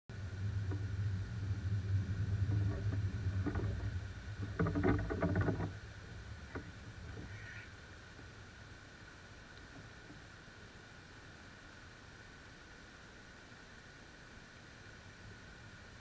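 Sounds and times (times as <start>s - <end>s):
wind buffeting microphone: 0.0s - 8.9s.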